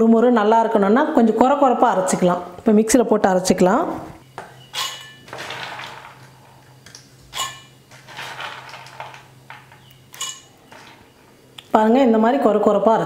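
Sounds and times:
beans rattling in steel bowl: 4.7s - 11.2s.

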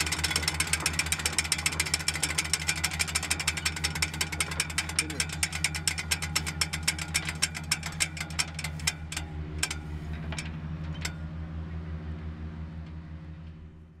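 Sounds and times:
rapid mechanical clicking: 0.0s - 11.2s
low engine-like hum: 0.0s - 14.0s.

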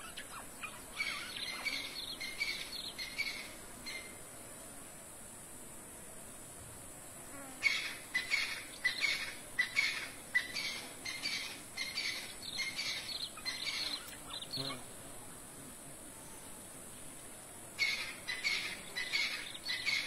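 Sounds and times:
steady high hiss: 0.0s - 20.0s.

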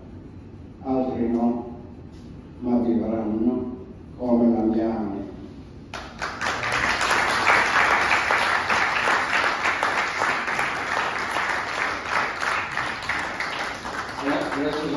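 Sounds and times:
audience clapping: 5.9s - 14.9s.

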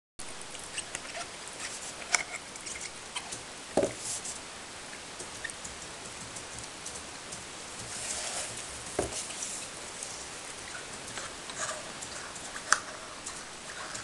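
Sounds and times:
dull thump: 3.8s - 4.0s.

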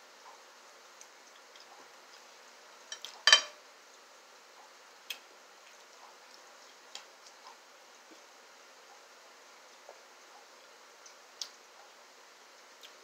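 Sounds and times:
tableware clicking lightly: 2.9s - 3.6s.

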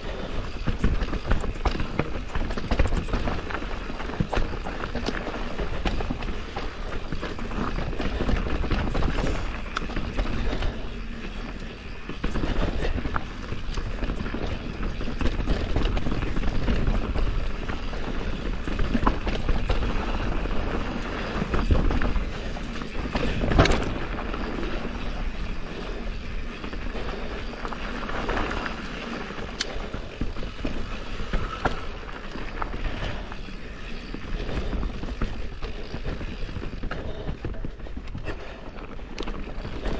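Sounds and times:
bike chain and frame rattling: 0.0s - 39.9s
bike tyres rolling over dirt and rocks: 0.0s - 39.9s.

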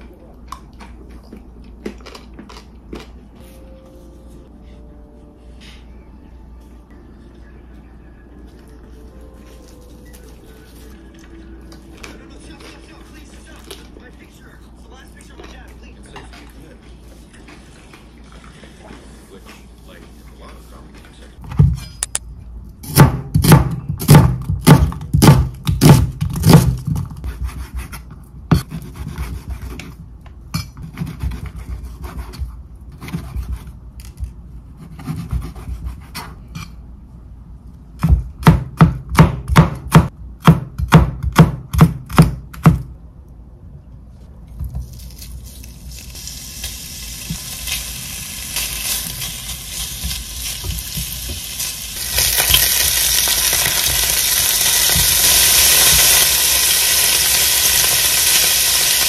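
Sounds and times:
knife chopping on cutting board: 22.8s - 30.0s, 34.8s - 36.4s, 38.0s - 42.9s
food sizzling in frying pan: 45.9s - 59.0s.

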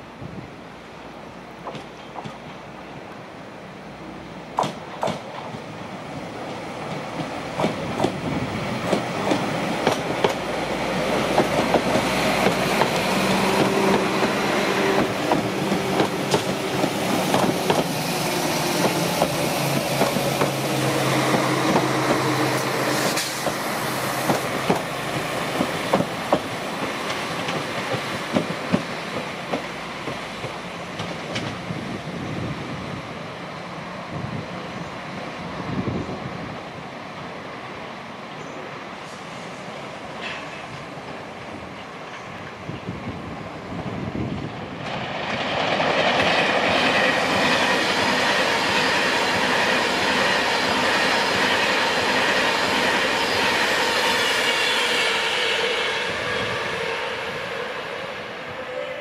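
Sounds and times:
train engine drone: 0.0s - 59.0s
train wheels clicking over rail joints: 1.6s - 2.6s, 4.6s - 5.7s, 6.5s - 20.7s, 21.3s - 31.6s, 40.2s - 40.9s.

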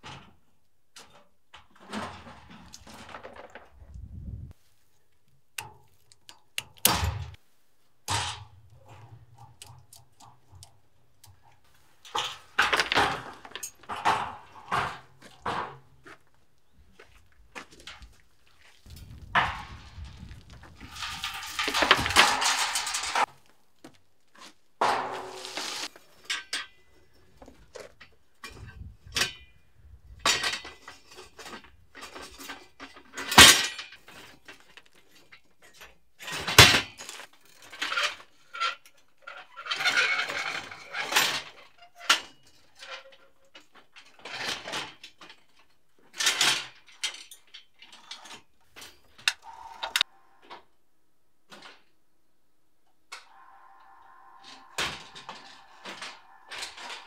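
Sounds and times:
steel scaffolding clanking: 19.3s - 23.3s, 24.8s - 26.9s, 53.2s - 57.0s.

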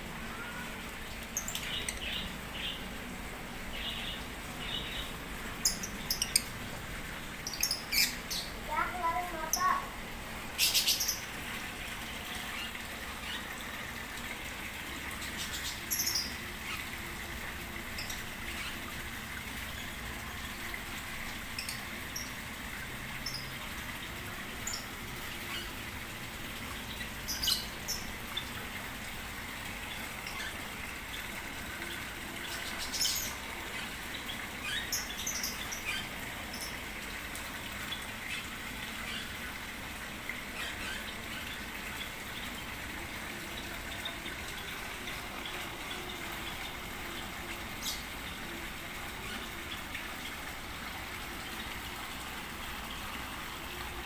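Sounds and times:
water pouring into a pond: 0.0s - 54.0s
small birds chirping: 3.7s - 6.6s, 7.4s - 9.9s, 10.6s - 11.3s, 15.2s - 17.0s, 26.8s - 28.6s, 32.3s - 36.8s, 45.4s - 48.4s.

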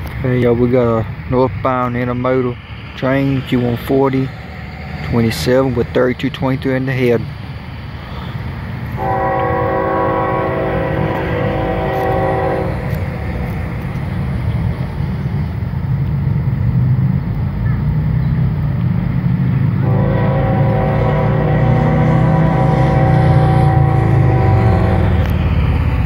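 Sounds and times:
diesel engine rumbling: 0.0s - 26.0s
train air horn blast: 8.9s - 13.6s, 19.8s - 25.5s.

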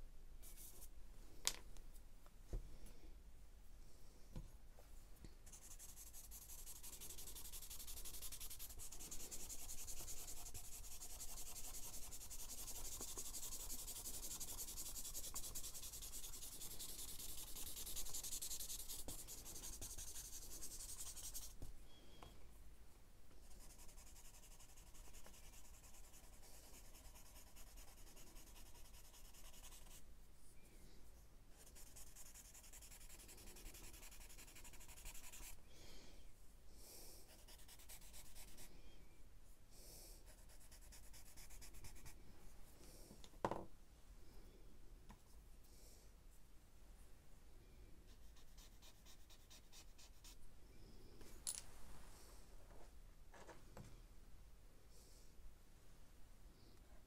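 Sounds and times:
charcoal shading on paper: 5.4s - 21.6s, 23.4s - 30.0s, 31.5s - 35.6s, 37.3s - 38.7s, 40.2s - 42.2s, 48.1s - 50.4s.

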